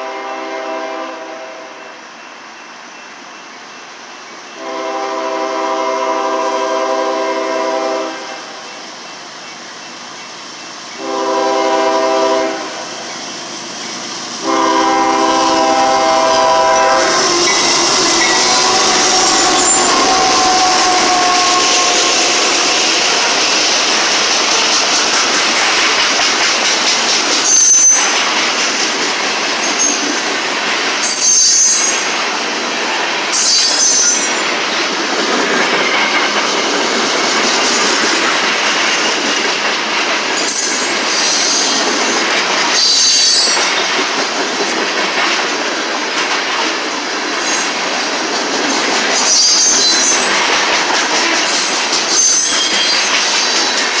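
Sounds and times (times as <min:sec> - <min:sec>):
train horn: 0:00.0 - 0:02.0, 0:04.6 - 0:08.6, 0:11.0 - 0:12.9, 0:14.4 - 0:24.0
freight train wheels rumbling on rail: 0:00.0 - 0:54.0
high-pitched wheel squeals: 0:16.6 - 0:24.0, 0:27.4 - 0:28.2, 0:31.0 - 0:32.2, 0:33.4 - 0:34.5, 0:42.8 - 0:43.6, 0:48.8 - 0:50.3, 0:51.5 - 0:53.8.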